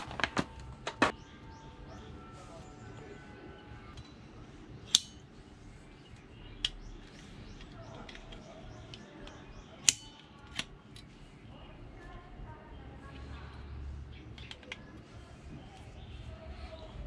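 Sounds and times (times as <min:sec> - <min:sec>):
folding saw blade clicking: 0:04.9 - 0:05.2, 0:09.8 - 0:10.7.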